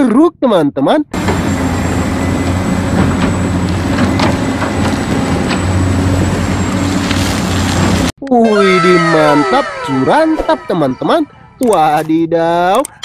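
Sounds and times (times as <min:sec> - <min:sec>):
excavator diesel engine hum: 0:01.2 - 0:08.1.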